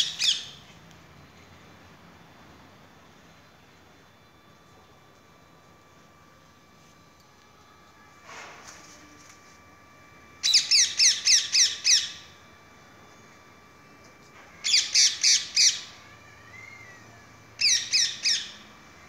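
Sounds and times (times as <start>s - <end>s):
parrot squawking: 0.0s - 0.6s, 14.6s - 15.9s, 17.6s - 18.6s.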